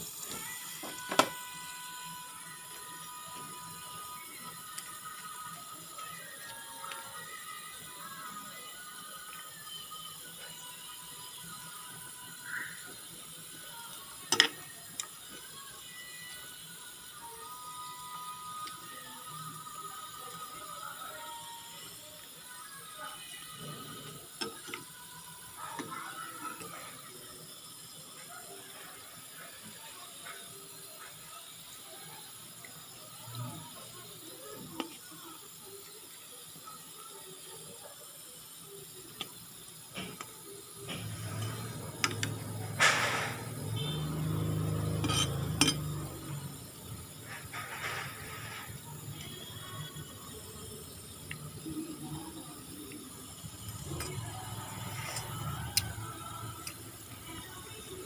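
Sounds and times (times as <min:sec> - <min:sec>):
soup sloshing: 0:43.8 - 0:46.2
ladle clinking against pot: 0:45.0 - 0:45.9.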